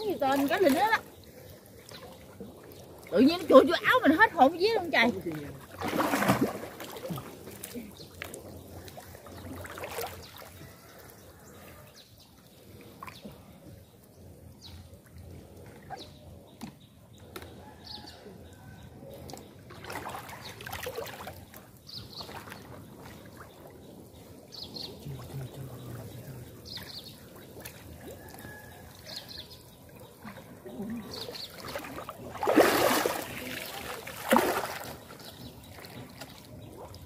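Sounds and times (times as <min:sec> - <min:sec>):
shallow water sloshing: 0:00.0 - 0:11.7, 0:18.6 - 0:37.0
water splashes: 0:00.0 - 0:11.7, 0:19.2 - 0:37.0.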